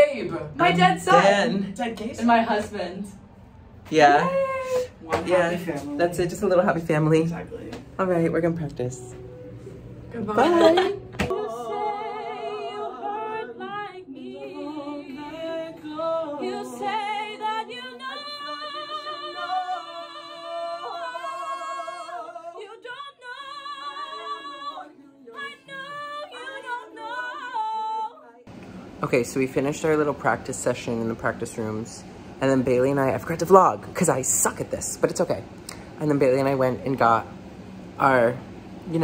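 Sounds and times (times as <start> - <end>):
woman singing: 10.1 - 28.5
men singing: 10.2 - 28.5.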